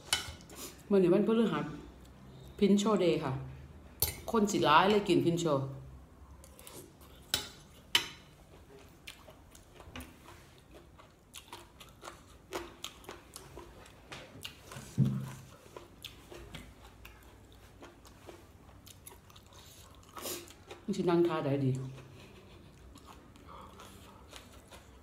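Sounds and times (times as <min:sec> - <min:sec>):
chewing with crunches: 0:08.5 - 0:20.9, 0:21.8 - 0:25.0.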